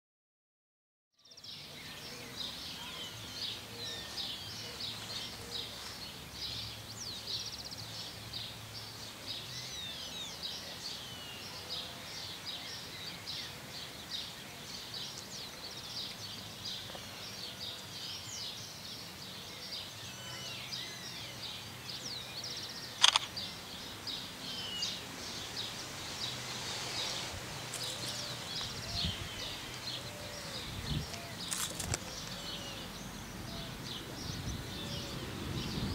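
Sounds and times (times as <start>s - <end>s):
small birds chirping: 1.2s - 35.9s
sharp click: 23.0s - 23.4s.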